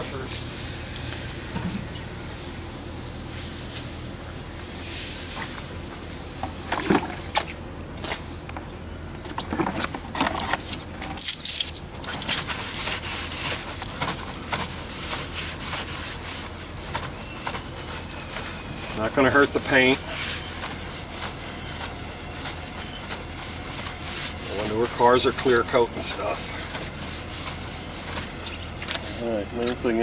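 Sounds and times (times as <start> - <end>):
garden hose spraying water: 11.2 - 30.0.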